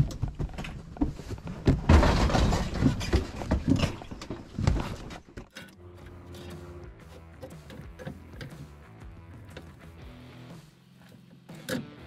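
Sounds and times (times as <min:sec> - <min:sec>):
thumps and knocks: 0:00.0 - 0:05.7.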